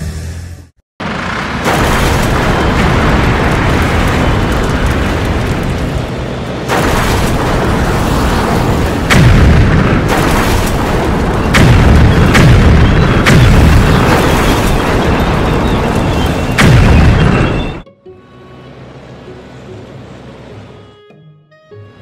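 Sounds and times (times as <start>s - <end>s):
tank cannon booms and explosions: 1.0s - 17.8s
sharp blast: 6.7s - 15.1s, 16.1s - 17.8s.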